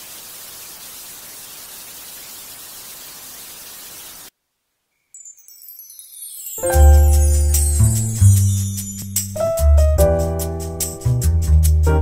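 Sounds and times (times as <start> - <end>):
television static hiss: 0.0 - 4.9.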